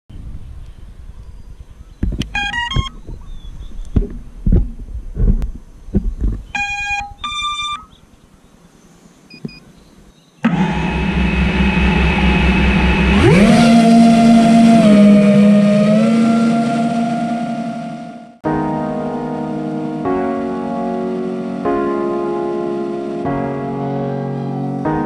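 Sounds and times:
electronic beeps: 2.3s - 3.1s, 6.5s - 8.0s
drone propellers buzzing: 10.4s - 25.0s.

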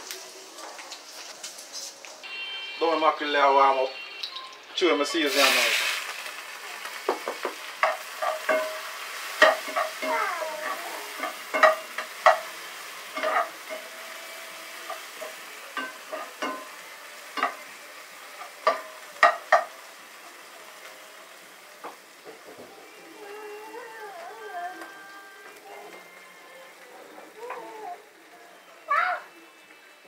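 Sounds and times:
vegetables sizzling in oil: 0.0s - 30.0s
metal spoon scraping pan: 13.2s - 13.8s.

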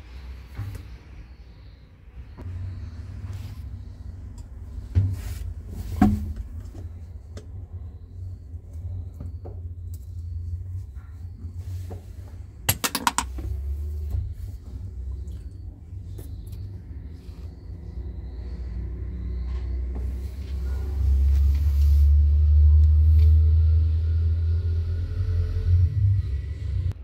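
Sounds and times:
low steady rumble: 1.6s - 27.0s
tool tapping and prying plastic: 12.7s - 13.3s.

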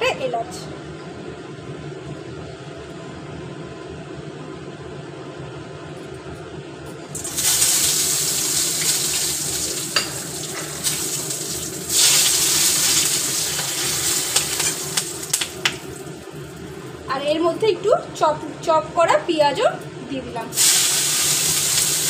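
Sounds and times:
spices sizzling in hot oil: 7.2s - 17.0s, 20.5s - 22.0s.

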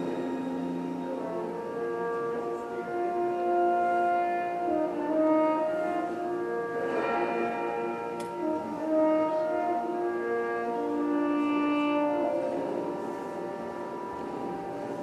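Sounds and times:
slow brass melody: 0.0s - 15.0s.

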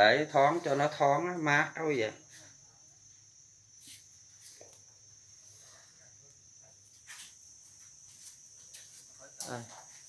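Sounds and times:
soft scuffs: 3.8s - 4.8s, 6.9s - 10.0s.

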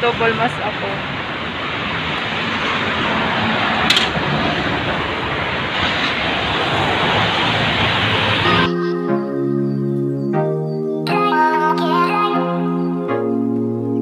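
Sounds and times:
street traffic: 0.0s - 9.0s.

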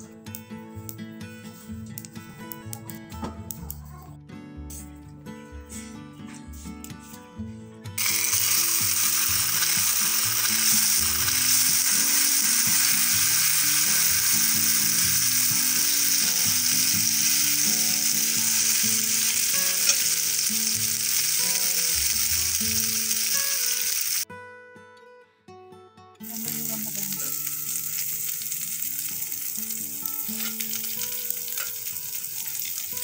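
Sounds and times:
batter frying in hot oil: 8.0s - 24.2s, 26.2s - 33.0s.

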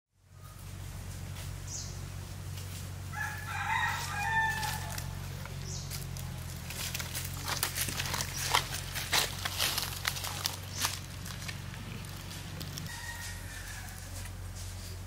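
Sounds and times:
steady low hum: 0.2s - 15.0s
footsteps on dry leaves: 0.4s - 15.0s
rooster crowing: 3.1s - 5.3s, 12.6s - 14.6s.

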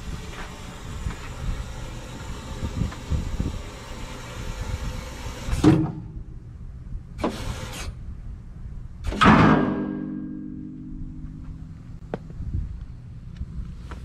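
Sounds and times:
scissor lift lowering rush: 0.0s - 6.2s, 7.2s - 8.0s
steady ringing tones: 9.4s - 12.0s.

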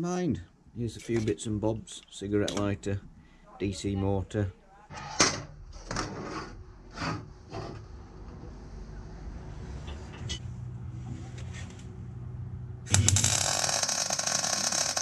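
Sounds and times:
low hum: 4.9s - 13.6s
welding arc crackling: 12.9s - 15.0s.

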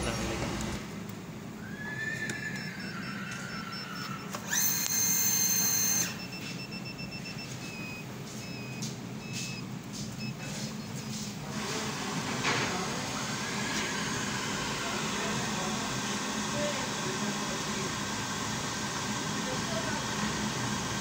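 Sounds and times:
burner fan humming: 0.0s - 21.0s
faint broken beeping: 2.3s - 11.4s
loud electronic beep: 2.4s - 9.6s.

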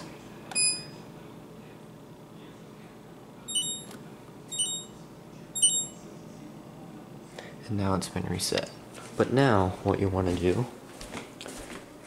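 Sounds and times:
refrigerator control panel beeps: 0.5s - 1.0s, 3.5s - 5.0s, 5.6s - 6.0s.

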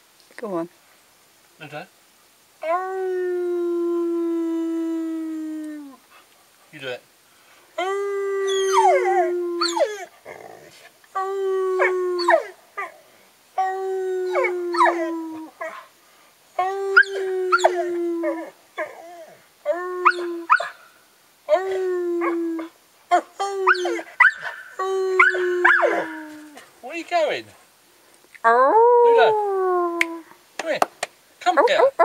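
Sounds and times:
dog howling: 2.6s - 6.0s, 7.8s - 13.0s, 13.6s - 15.8s, 16.6s - 20.7s, 21.5s - 26.7s, 28.5s - 30.3s
man howling: 2.6s - 6.0s, 7.8s - 12.9s, 13.6s - 15.6s, 16.6s - 20.5s, 21.5s - 24.1s, 24.8s - 26.7s, 28.5s - 30.3s.

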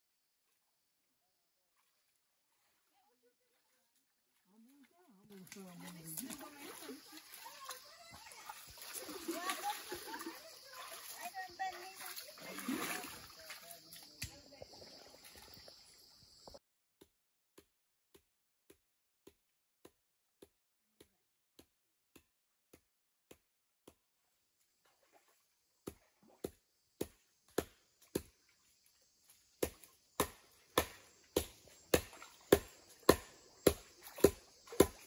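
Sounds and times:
water sloshing and splashing: 1.6s - 16.6s, 24.7s - 26.6s, 27.6s - 35.0s
wooden stick pounding on log: 29.6s - 35.0s.

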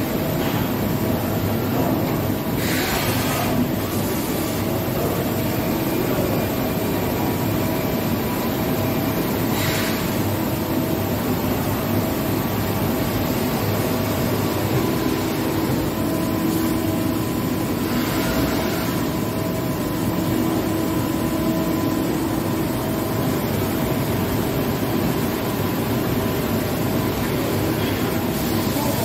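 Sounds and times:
coolant spray rushing: 2.5s - 4.7s.

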